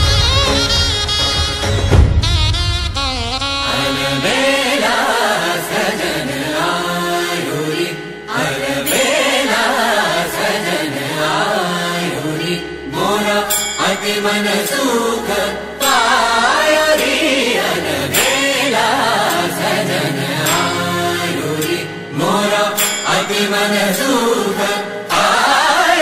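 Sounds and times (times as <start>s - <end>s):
steady drone: 5.7s - 25.7s.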